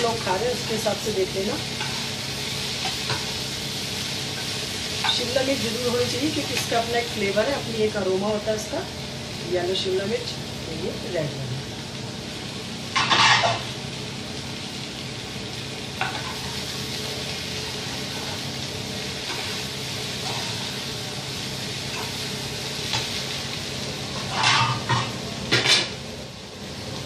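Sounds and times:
vegetables sizzling in a frying pan: 0:00.0 - 0:27.0
spatula scraping a pan: 0:13.0 - 0:13.7, 0:19.2 - 0:20.8, 0:24.1 - 0:25.9.

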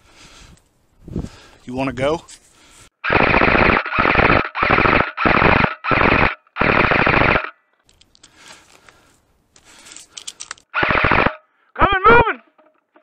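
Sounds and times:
automatic gunfire bursts: 0:03.1 - 0:07.5, 0:10.8 - 0:11.3.

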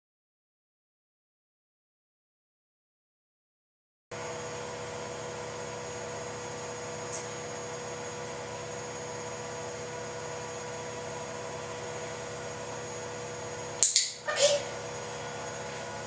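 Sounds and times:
constant hum tone: 0:04.4 - 0:16.0.

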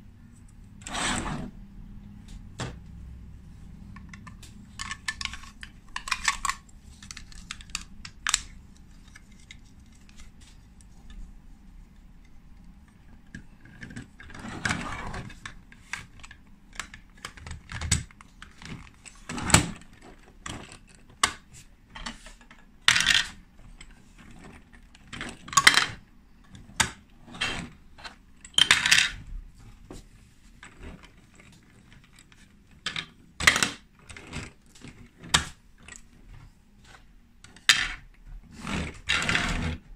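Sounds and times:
plastic bricks clicking: 0:04.0 - 0:10.2.

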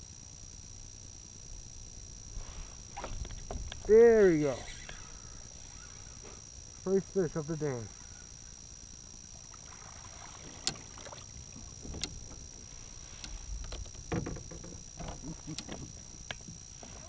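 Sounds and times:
faint high whine: 0:00.0 - 0:17.0
rustling: 0:02.3 - 0:06.5, 0:09.9 - 0:17.0
fishing gear clicks and knocks: 0:11.8 - 0:16.8.

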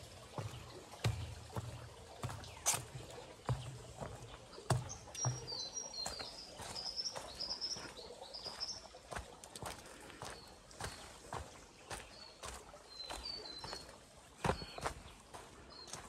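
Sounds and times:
footsteps: 0:00.0 - 0:13.2
bird chirping: 0:01.5 - 0:08.9.

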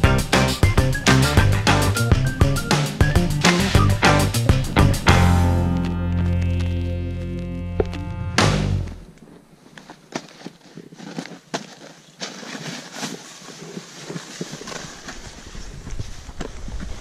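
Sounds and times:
snow crunching under boots: 0:00.8 - 0:17.0
wind rumble on microphone: 0:15.2 - 0:17.0.

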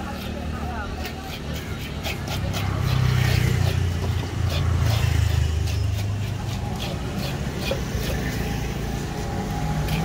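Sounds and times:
knife scraping fish on wood: 0:00.0 - 0:10.0.

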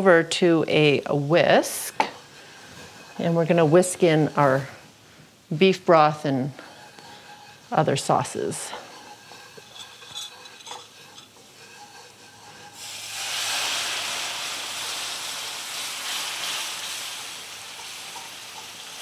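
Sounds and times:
sizzling hiss: 0:00.0 - 0:19.0
whisk ticking against skillet: 0:06.7 - 0:12.8.

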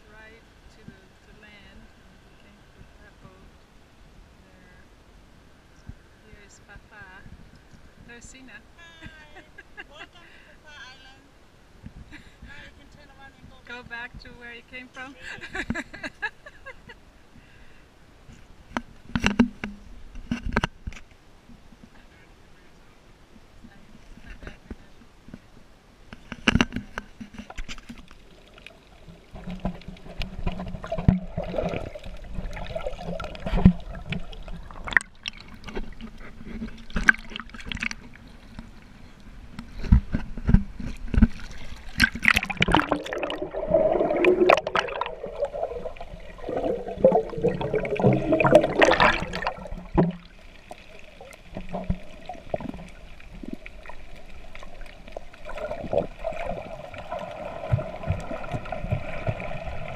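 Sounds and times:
water sloshing and gurgling: 0:26.1 - 0:59.9
knocks and splashes: 0:26.4 - 0:38.8, 0:39.6 - 0:59.9.

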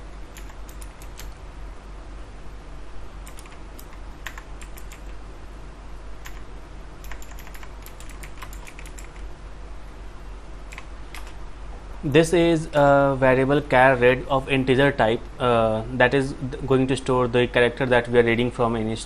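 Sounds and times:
steady low hum: 0:00.0 - 0:19.0
keyboard typing: 0:00.3 - 0:01.4, 0:03.2 - 0:05.2, 0:06.2 - 0:09.3, 0:10.7 - 0:11.4.

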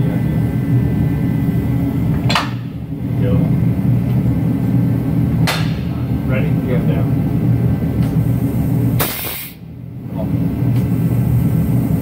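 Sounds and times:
jack mechanical drone: 0:00.0 - 0:12.0
short sharp hiss: 0:09.0 - 0:09.6.

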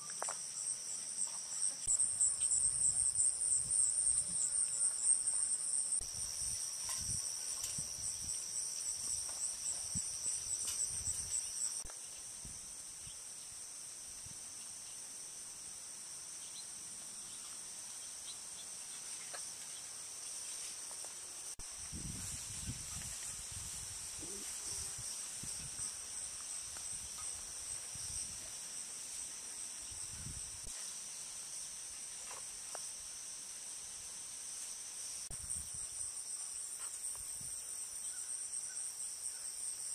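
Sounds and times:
loud pulsing insect trill: 0:00.0 - 0:18.8, 0:21.4 - 0:32.1
crickets and insects trilling: 0:00.0 - 0:39.9.

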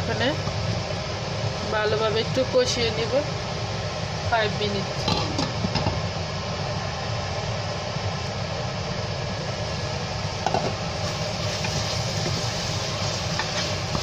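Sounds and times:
vegetables sizzling in a pot: 0:00.0 - 0:14.0
wooden spoon stirring: 0:11.0 - 0:14.0.

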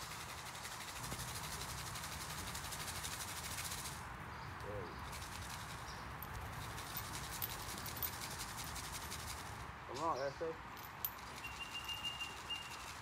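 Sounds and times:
outdoor background noise: 0:00.0 - 0:13.0
high bird chirps: 0:11.2 - 0:13.0
low bird call: 0:11.3 - 0:13.0.

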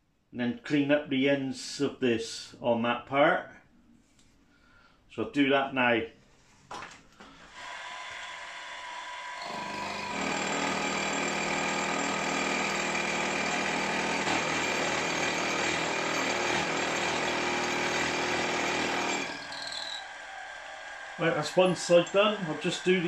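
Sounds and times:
end mill cutting metal: 0:07.6 - 0:23.0
milling machine spindle running: 0:07.6 - 0:23.0.

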